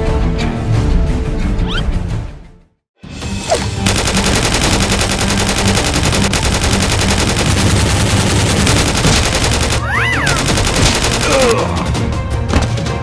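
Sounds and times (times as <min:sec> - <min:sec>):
machine-gun fire: 0:03.8 - 0:11.6.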